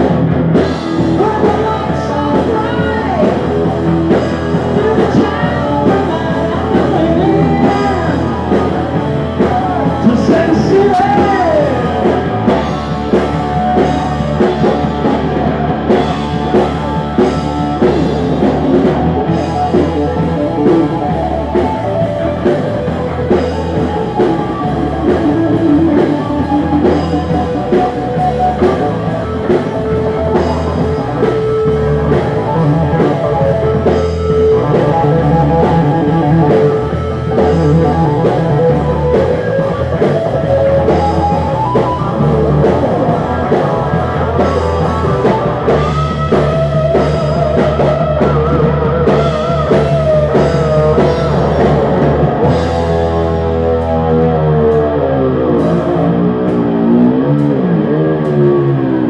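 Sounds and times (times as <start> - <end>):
bass guitar: 0.0 - 59.0
distorted lead electric guitar: 0.0 - 59.0
drum kit: 0.0 - 59.0.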